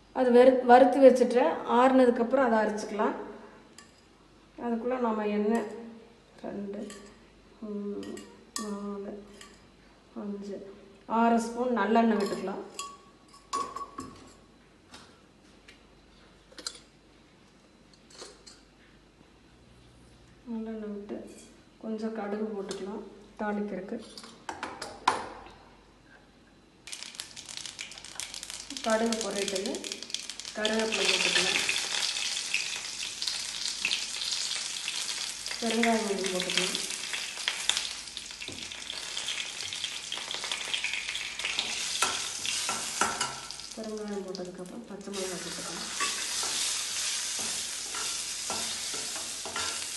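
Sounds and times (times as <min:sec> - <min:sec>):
oil sizzling and crackling: 0:26.8 - 0:49.9.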